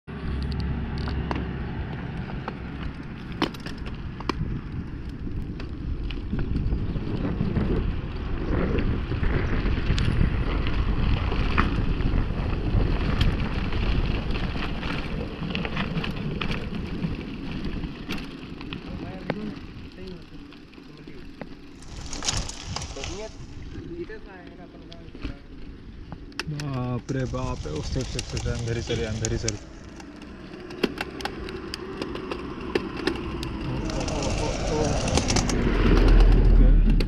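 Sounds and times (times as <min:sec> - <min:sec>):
wind noise on microphone: 0:00.1 - 0:20.1, 0:21.8 - 0:24.3, 0:31.1 - 0:37.0
stones and bike clicking: 0:00.1 - 0:37.0
tyres rolling over gravel: 0:00.6 - 0:37.0.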